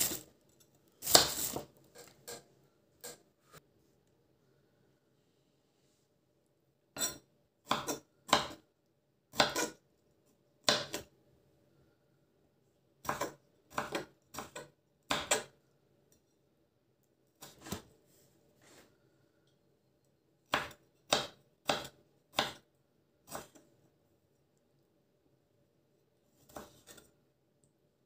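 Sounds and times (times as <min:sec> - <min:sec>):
knife chopping on wooden board: 0:01.0 - 0:01.7, 0:07.7 - 0:08.6, 0:09.3 - 0:09.8, 0:10.6 - 0:11.1, 0:13.0 - 0:15.5, 0:20.5 - 0:22.6.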